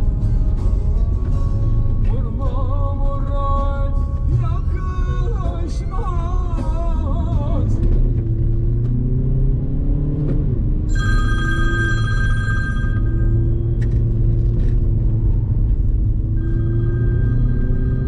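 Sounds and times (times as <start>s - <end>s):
folk music: 0.0s - 7.8s
car driving on road: 0.0s - 18.0s.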